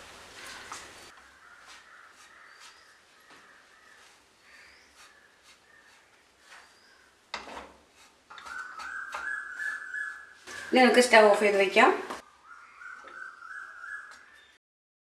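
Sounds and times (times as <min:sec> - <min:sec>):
spatula scraping dough in pan: 0:00.4 - 0:11.0.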